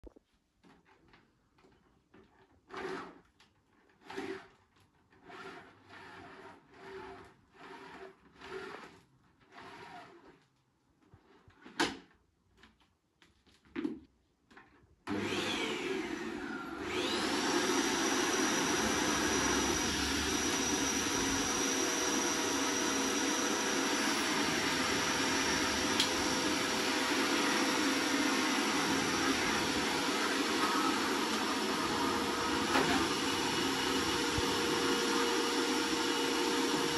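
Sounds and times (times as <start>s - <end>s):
vacuum cleaner motor: 15.1s - 36.9s.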